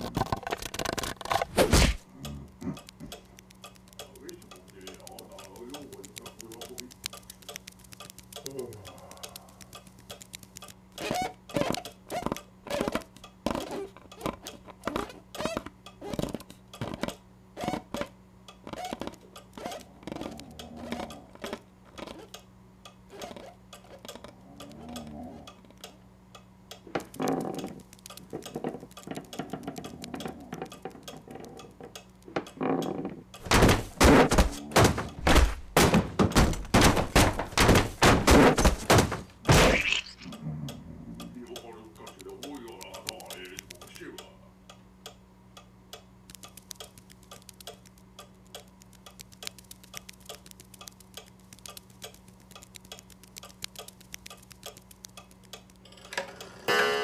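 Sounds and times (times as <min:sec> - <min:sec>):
rapid knocking and clattering: 0:27.0 - 0:39.4
light knocks and thuds: 0:33.4 - 0:39.7.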